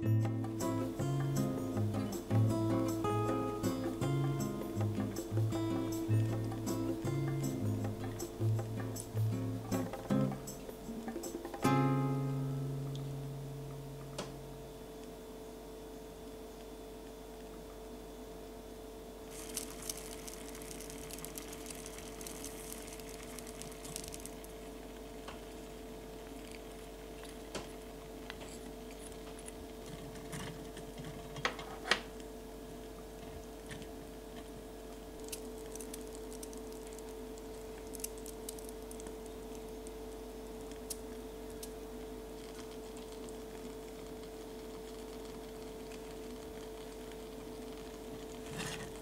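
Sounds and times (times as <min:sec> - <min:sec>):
broth simmering: 0:00.0 - 0:15.2, 0:19.0 - 0:31.3, 0:34.0 - 0:49.0.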